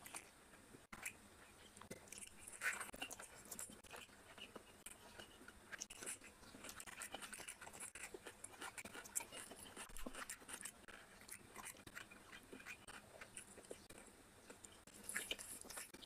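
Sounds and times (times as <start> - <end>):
fingers squelching rice: 0.9 - 16.0
person chewing: 0.9 - 16.0.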